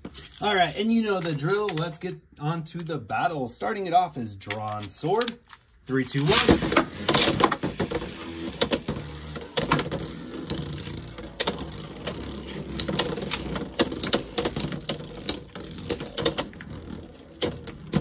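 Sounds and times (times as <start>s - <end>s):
spinning tops whirring: 6.1s - 18.0s
spinning tops clacking: 6.2s - 17.4s.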